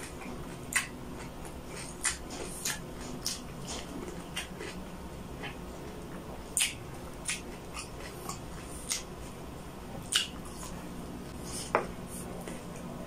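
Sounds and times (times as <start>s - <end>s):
wet chewing smacks: 0.0s - 4.8s, 6.5s - 9.2s, 10.0s - 10.8s
low hum: 0.0s - 13.0s.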